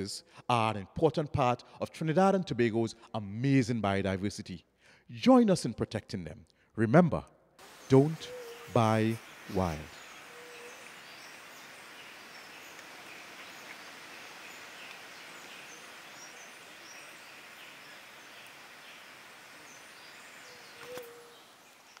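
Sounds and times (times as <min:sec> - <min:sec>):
background hiss: 0:07.6 - 0:22.0
faint high bird chirps: 0:07.7 - 0:18.6, 0:19.7 - 0:22.0.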